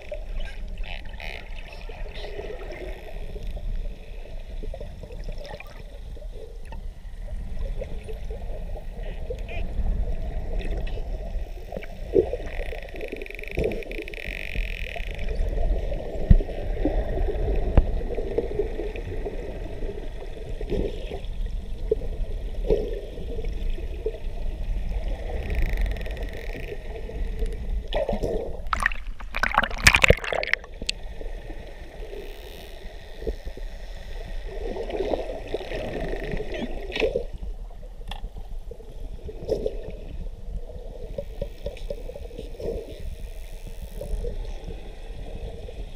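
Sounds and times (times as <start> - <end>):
low underwater rumble: 21.3 - 32.2
underwater water rushing: 21.9 - 32.3
burst of water noise: 28.7 - 31.0.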